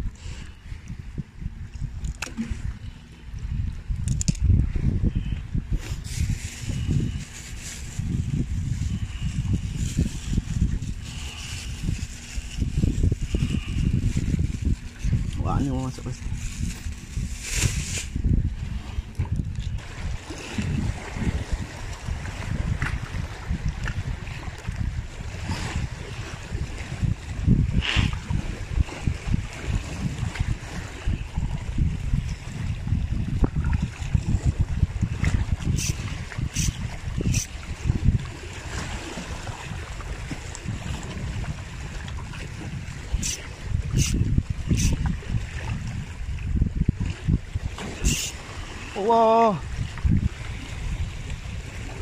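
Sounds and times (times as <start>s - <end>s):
wind rumbling on microphone: 0.0s - 52.0s
small waves lapping against rocks: 33.3s - 52.0s
waves splashing against rocks: 46.6s - 52.0s.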